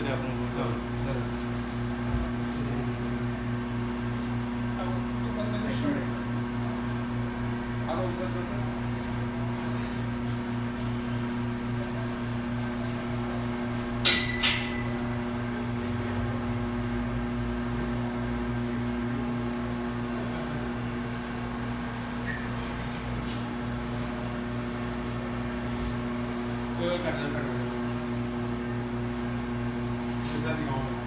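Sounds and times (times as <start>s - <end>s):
cooling unit humming: 0.0s - 31.0s
sharp metal clanks: 14.0s - 14.9s.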